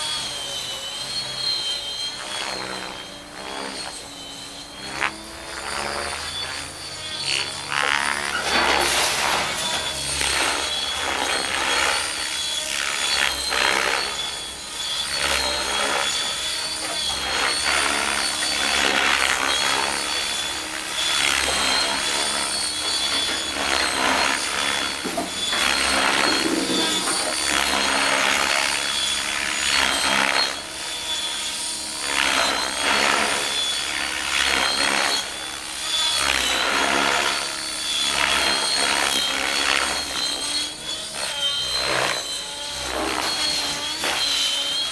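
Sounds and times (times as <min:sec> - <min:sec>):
helicopter rotor blades whooshing: 0:00.0 - 0:44.9
steady high whine: 0:00.0 - 0:44.9.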